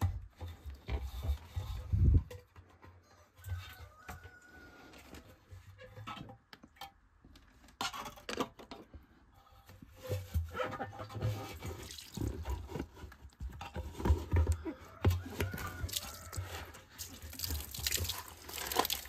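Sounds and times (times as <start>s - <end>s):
wet sloshing and dripping: 11.4s - 13.0s, 15.5s - 19.0s.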